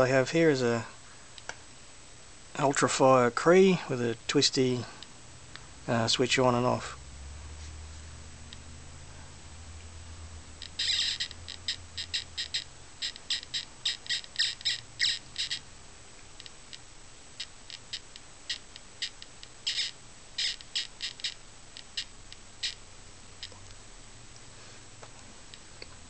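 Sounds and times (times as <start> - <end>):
meter giving high chirps: 10.6 - 15.7, 17.4 - 22.8.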